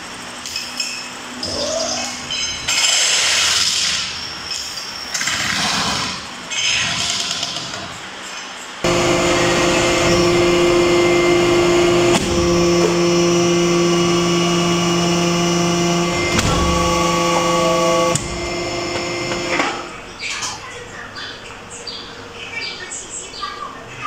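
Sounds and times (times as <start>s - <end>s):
hydraulic press whining: 8.8s - 20.1s.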